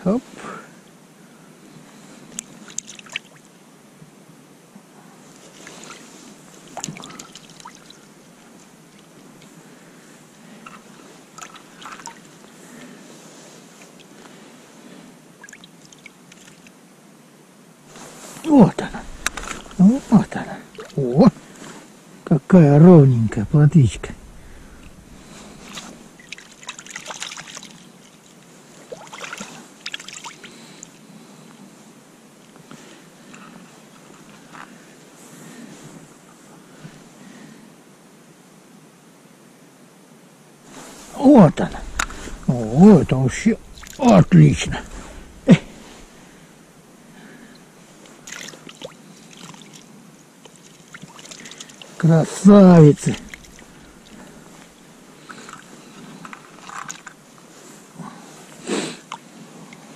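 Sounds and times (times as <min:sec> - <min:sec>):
water and slush splashing: 0:18.0 - 0:21.0, 0:23.3 - 0:30.6, 0:40.7 - 0:46.4, 0:48.2 - 0:49.9, 0:50.5 - 0:55.8.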